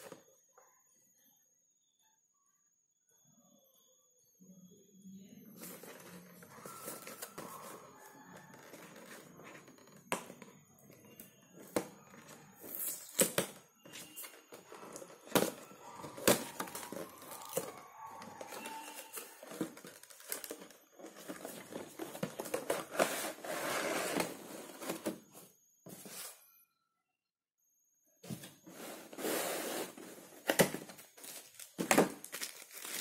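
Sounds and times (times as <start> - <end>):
cardboard box scraping: 21.1 - 25.2, 28.6 - 30.4
plastic crinkling: 30.4 - 33.0.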